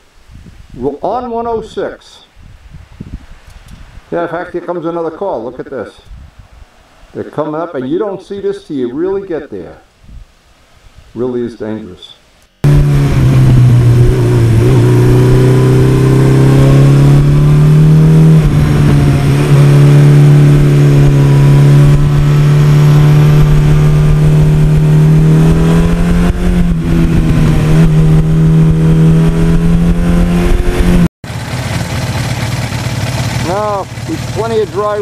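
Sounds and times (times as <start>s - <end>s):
motorcycle engine running: 12.6s - 35.0s.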